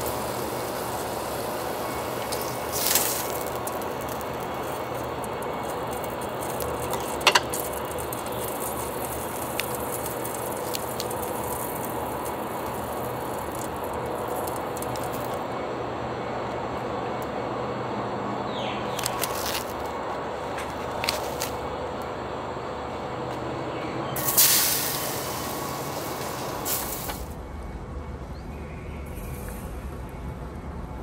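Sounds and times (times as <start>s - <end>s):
steady background hiss: 0.0s - 31.0s
plastic film crinkling: 1.9s - 15.4s, 18.9s - 20.0s.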